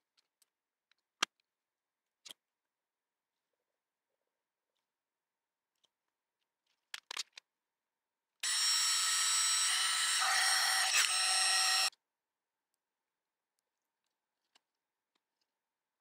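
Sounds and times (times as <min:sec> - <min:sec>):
heat gun fan whine: 0:08.4 - 0:11.9.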